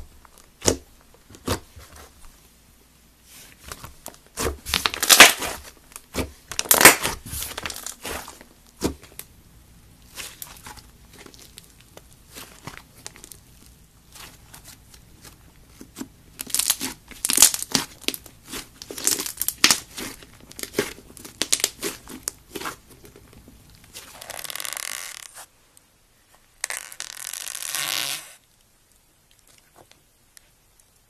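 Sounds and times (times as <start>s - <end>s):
slime crackling: 3.3s - 9.3s, 10.0s - 25.5s.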